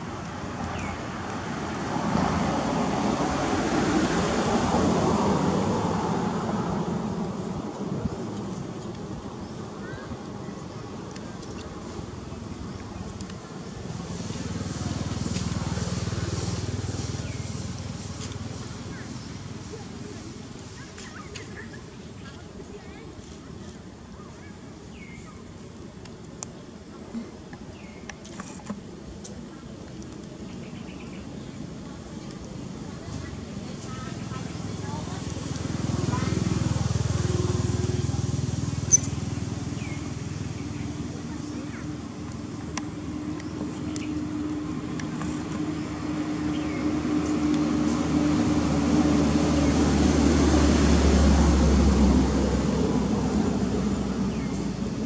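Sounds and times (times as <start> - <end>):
vehicle engine humming: 31.6 - 55.0
faint short chirps: 38.9 - 39.2.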